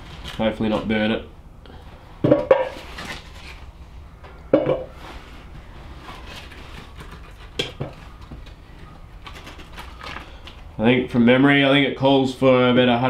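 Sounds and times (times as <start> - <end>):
metal clunks on pot: 4.5 - 4.9.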